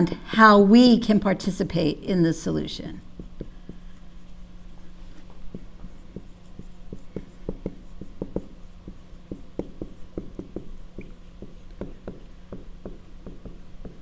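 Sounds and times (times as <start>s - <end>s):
steady low hum: 0.0s - 14.0s
marker writing on whiteboard: 2.9s - 14.0s.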